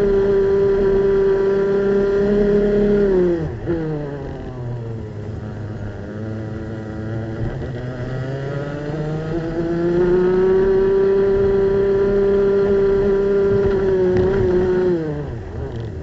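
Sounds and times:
kart engine revving: 0.0 - 16.0.

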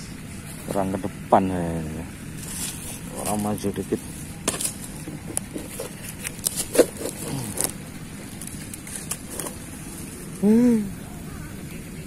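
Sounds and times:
dry reeds clicking and crackling: 2.4 - 10.3.

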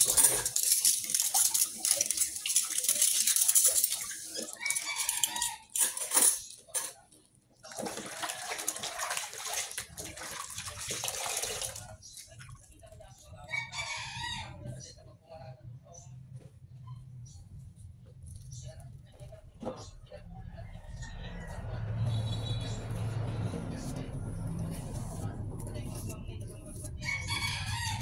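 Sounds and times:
dishes and cutlery clinking: 0.0 - 7.2
tap water splashing in sink: 7.7 - 11.9.

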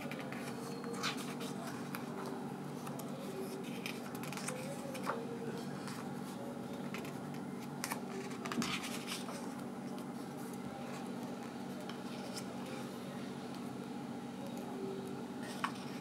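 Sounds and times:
book pages rustling: 6.9 - 10.2.

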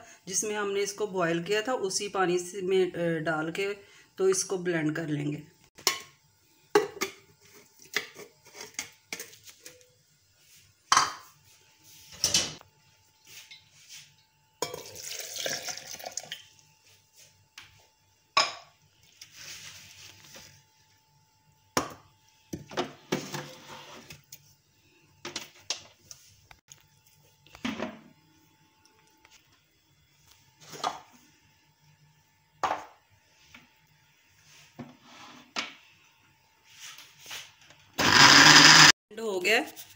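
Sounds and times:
liquid being poured: 14.7 - 16.4.

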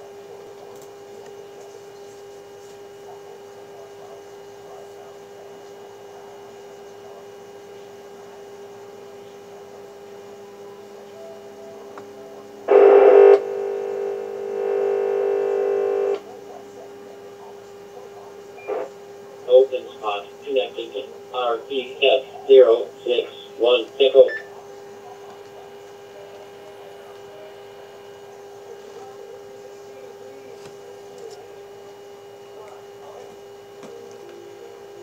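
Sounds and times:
steady hum: 10.5 - 16.2, 18.6 - 33.2
buzzy tone: 12.7 - 16.2
electronic tones from speaker: 19.7 - 24.5.

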